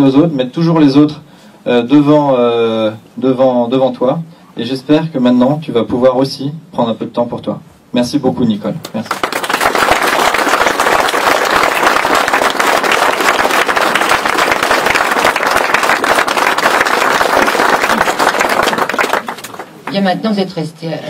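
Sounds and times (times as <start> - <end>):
audience applause: 9.0 - 20.0.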